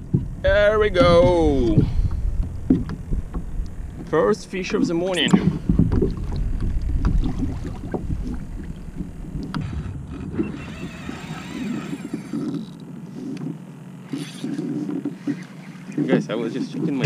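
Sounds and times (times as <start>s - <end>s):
wind rumbling on microphone: 0.0s - 12.7s
water lapping around kayak: 0.0s - 17.0s.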